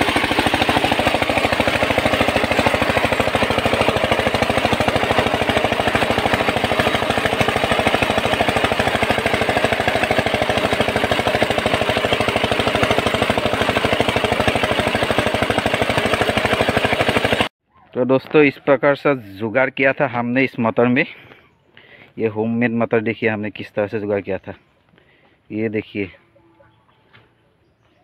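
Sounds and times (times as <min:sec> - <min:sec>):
diesel engine knocking steadily: 0:00.0 - 0:17.5.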